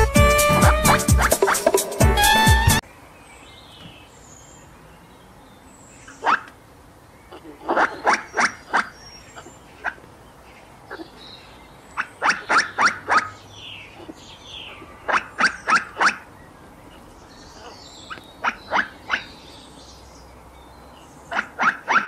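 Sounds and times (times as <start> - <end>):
squirrel barking: 0.3 - 2.8, 6.1 - 6.5, 7.3 - 10.0, 11.9 - 19.5, 21.3 - 22.0.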